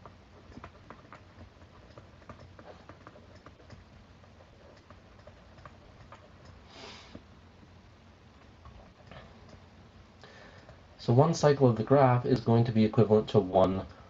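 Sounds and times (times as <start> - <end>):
short hiss: 6.7 - 7.2.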